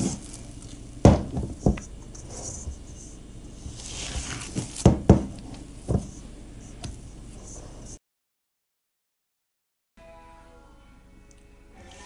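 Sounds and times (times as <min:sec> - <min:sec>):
sticky dough sliding sounds: 0:00.0 - 0:00.8, 0:01.6 - 0:06.8
dough thumping in a steel bowl: 0:01.0 - 0:01.8, 0:04.2 - 0:06.1.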